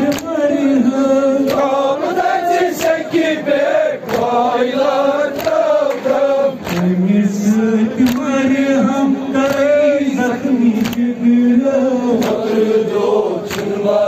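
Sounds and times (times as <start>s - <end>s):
hands slapping chests: 0.0s - 0.4s, 1.4s - 1.7s, 2.7s - 3.2s, 4.0s - 4.4s, 5.4s - 6.9s, 8.0s - 8.3s, 9.4s - 9.8s, 10.8s - 11.1s, 12.1s - 12.5s, 13.4s - 13.8s
man chanting into a microphone: 0.0s - 3.2s, 6.1s - 14.0s.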